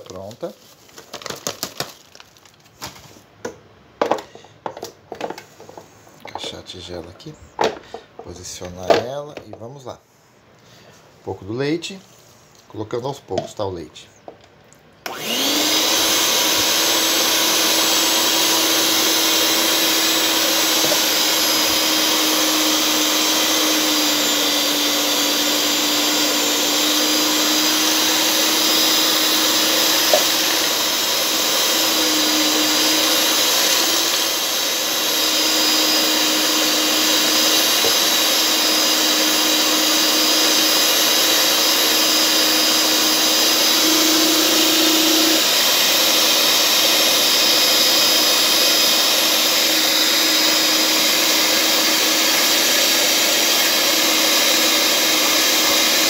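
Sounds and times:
stand mixer motor whining: 0:15.0 - 0:56.0.

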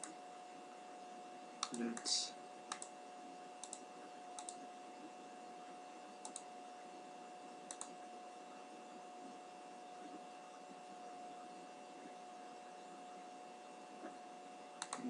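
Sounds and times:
faint electrical hum: 0:00.0 - 0:15.0
computer mouse button clicking: 0:03.6 - 0:03.8, 0:06.2 - 0:06.4, 0:14.8 - 0:15.0.

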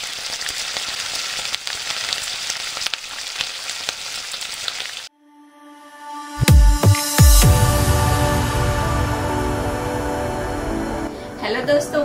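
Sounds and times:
food frying in hot oil: 0:00.0 - 0:05.1.

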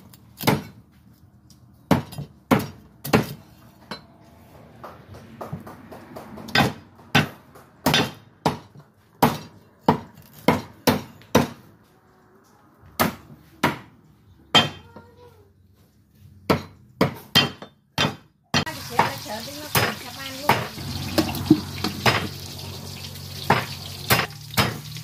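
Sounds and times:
cleaver chopping on wooden block: 0:00.4 - 0:00.8, 0:01.9 - 0:03.4, 0:06.4 - 0:11.6, 0:16.5 - 0:19.1.

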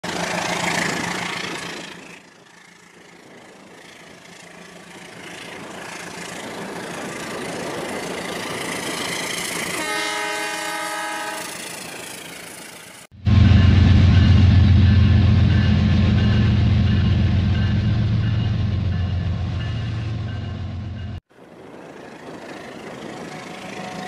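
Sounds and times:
toy trains rumbling on track: 0:00.0 - 0:10.0
toy train horn: 0:09.7 - 0:11.6, 0:23.2 - 0:24.0.

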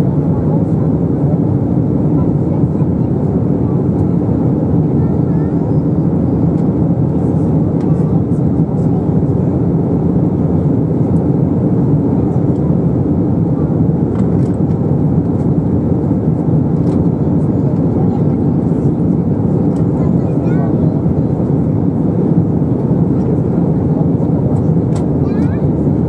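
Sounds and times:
airplane cabin engine rumble: 0:00.0 - 0:26.0.

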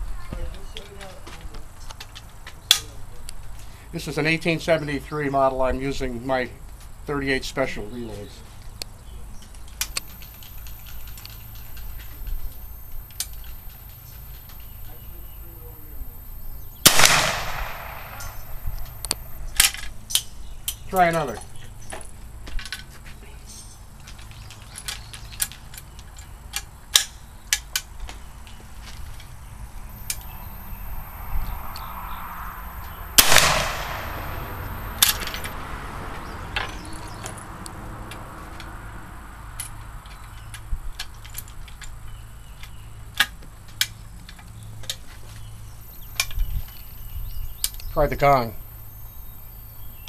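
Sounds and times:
rifle shot with echo: 0:15.8 - 0:19.2, 0:32.8 - 0:35.5.

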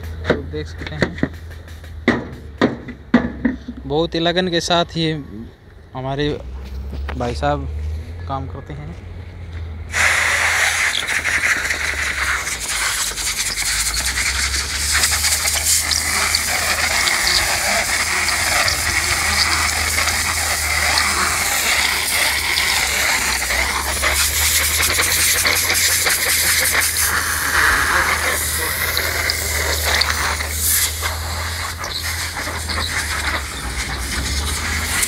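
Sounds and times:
compressed air hissing: 0:09.9 - 0:35.0.

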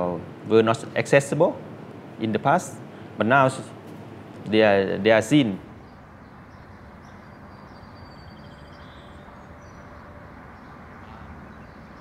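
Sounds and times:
faint bird chirps: 0:05.8 - 0:12.0.

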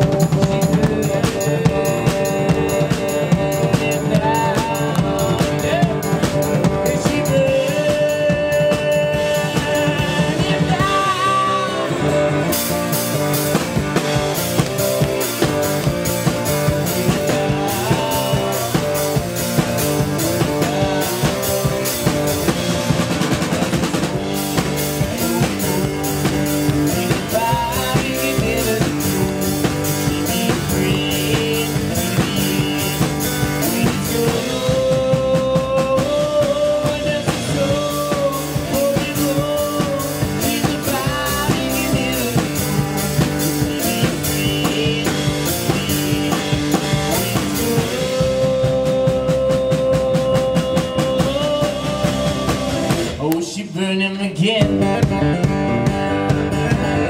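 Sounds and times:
acoustic guitar strumming: 0:00.0 - 0:33.9
drum kit rock beat: 0:00.0 - 0:57.0.

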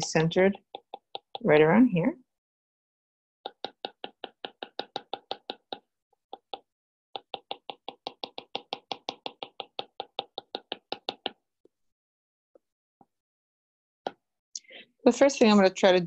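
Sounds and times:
stylus tapping on tablet: 0:00.1 - 0:01.6, 0:03.4 - 0:11.5.

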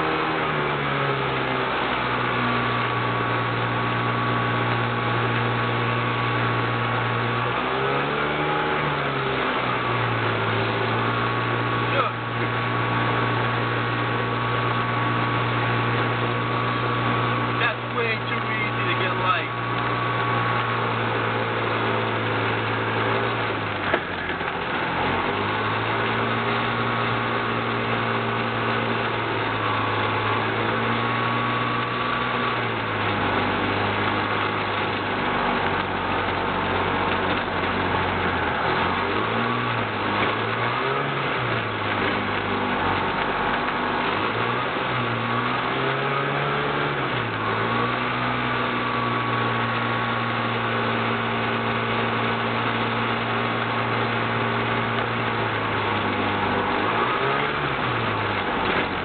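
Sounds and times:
propeller wash and wind rushing: 0:00.0 - 0:45.5
airplane engine and propeller: 0:00.0 - 0:59.0.

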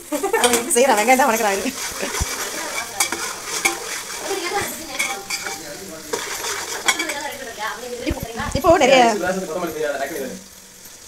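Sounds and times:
onions sizzling in a pot: 0:00.0 - 0:11.0
spatula scraping and knocking pot: 0:00.4 - 0:07.4.

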